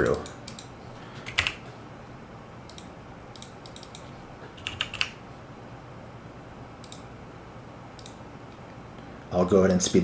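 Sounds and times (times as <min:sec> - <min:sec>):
computer keyboard typing: 0:00.0 - 0:01.6, 0:02.7 - 0:04.0, 0:04.6 - 0:05.2.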